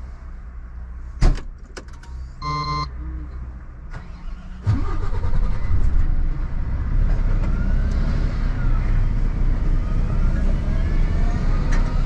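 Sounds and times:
diesel engine starting and idling: 1.9 - 12.0
short electronic beep: 2.4 - 3.0.

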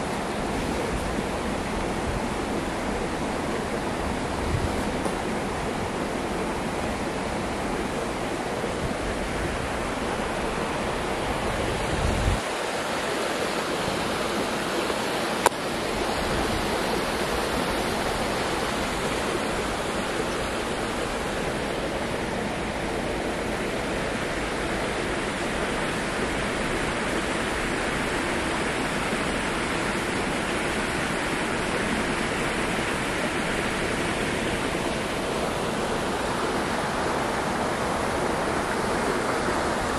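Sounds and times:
steady rushing noise: 0.0 - 39.9.

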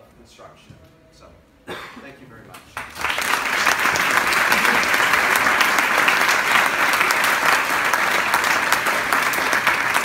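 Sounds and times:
audience applauding: 2.8 - 10.0.

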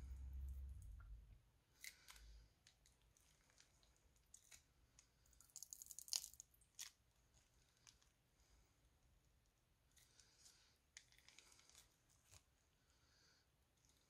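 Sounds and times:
low handling rumble: 0.0 - 1.4.

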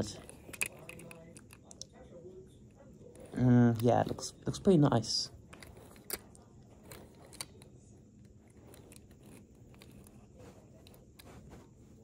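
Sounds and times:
toy car clicking on carpet: 0.0 - 2.0, 5.5 - 12.0.

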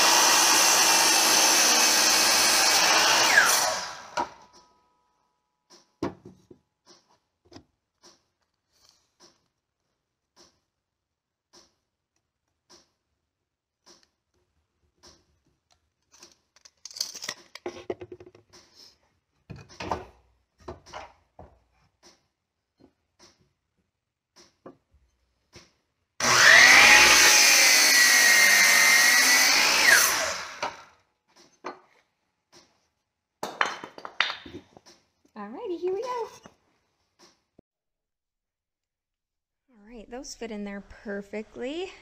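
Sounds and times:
miter saw cutting wood: 0.0 - 4.4, 26.2 - 30.9.

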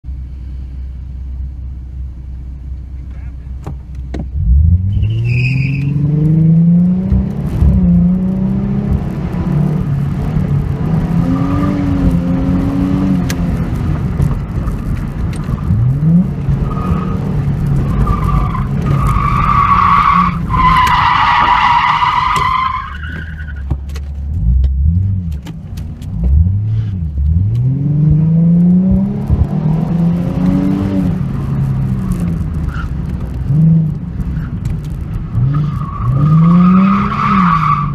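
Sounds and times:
car engine revving: 4.3 - 37.9
tire squeal: 4.8 - 6.1, 16.6 - 23.8, 32.6 - 33.0, 35.4 - 37.9.

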